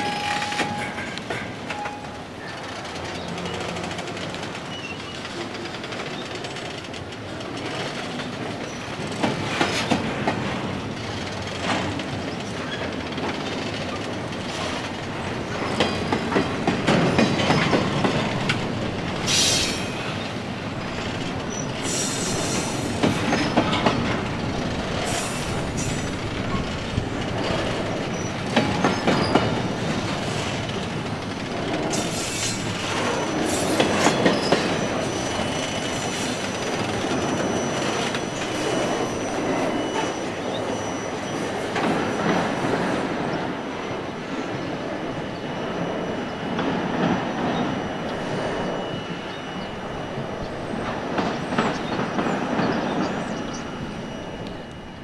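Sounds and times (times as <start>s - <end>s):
freight train rumbling past: 0.0s - 55.0s
high-pitched wheel squeals: 37.1s - 41.6s.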